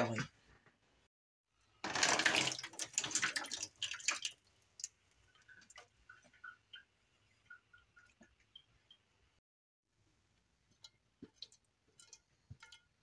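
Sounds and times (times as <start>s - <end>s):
sauce plopping and dripping: 2.5s - 9.4s, 10.3s - 13.0s.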